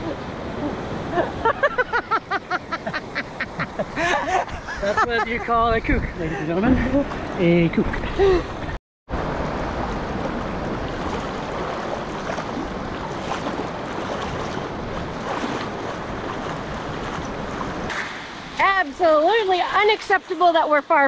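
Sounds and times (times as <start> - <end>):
surf washing through shallows: 0.0 - 5.5, 6.1 - 21.0
wind on microphone: 5.7 - 19.8.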